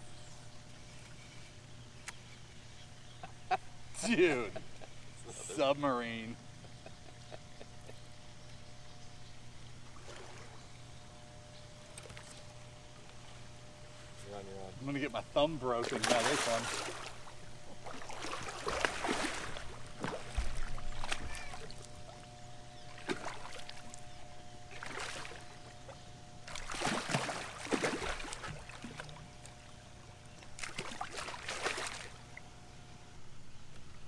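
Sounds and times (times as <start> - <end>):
fish splashing in water: 15.9 - 21.8, 23.0 - 24.0, 24.7 - 25.5, 26.5 - 29.2, 30.6 - 32.2.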